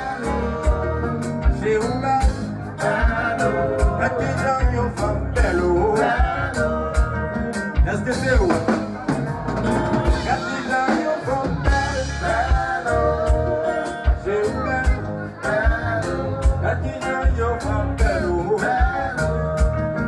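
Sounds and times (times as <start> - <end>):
keyboards: 0.0 - 20.0
live band playing: 0.0 - 20.0
man singing: 0.0 - 20.0
steady low beat: 0.0 - 20.0.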